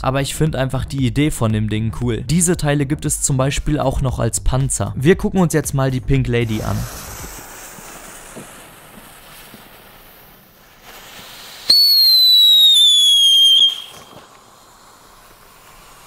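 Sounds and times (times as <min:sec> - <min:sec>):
firework whistle: 0:06.6 - 0:16.0.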